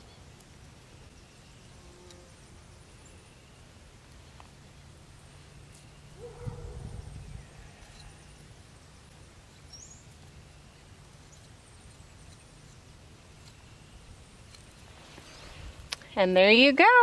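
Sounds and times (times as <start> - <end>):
faint high bird chirp: 5.4 - 12.8.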